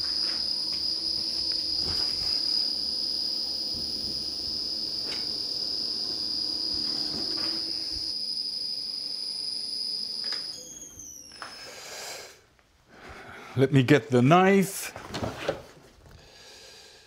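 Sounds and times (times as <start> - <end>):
machine high-pitched whine: 0.0 - 12.1.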